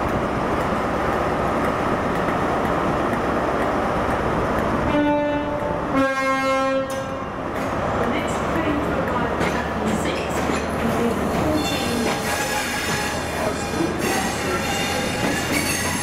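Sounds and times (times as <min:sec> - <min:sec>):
train running: 0:00.0 - 0:16.0
train two-tone horn: 0:04.9 - 0:07.2.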